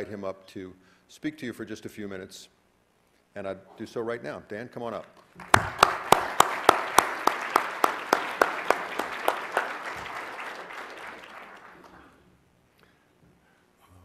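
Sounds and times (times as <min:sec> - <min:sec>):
person clapping loudly: 0:05.4 - 0:12.1
audience applause: 0:05.4 - 0:12.2.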